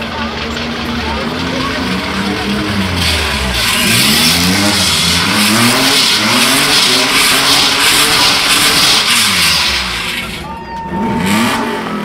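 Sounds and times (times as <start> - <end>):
car engine revving: 0.0 - 12.0
tyres skidding on asphalt: 0.0 - 12.0.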